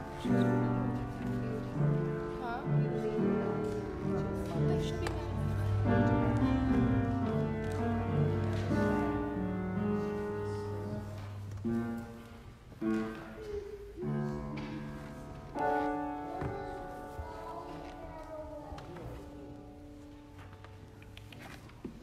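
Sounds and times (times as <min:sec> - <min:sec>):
keyboard chords: 0:00.0 - 0:13.5.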